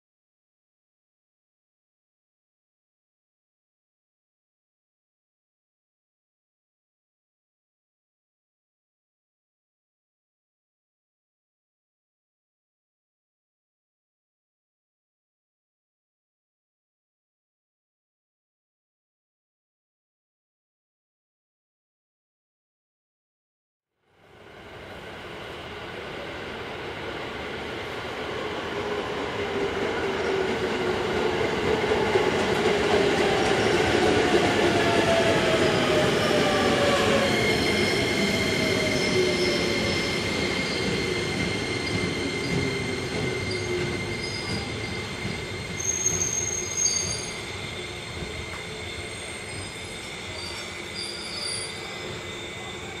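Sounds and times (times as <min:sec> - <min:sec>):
electric train whine: 0:24.3 - 0:53.0
train brake squeal: 0:34.8 - 0:53.0.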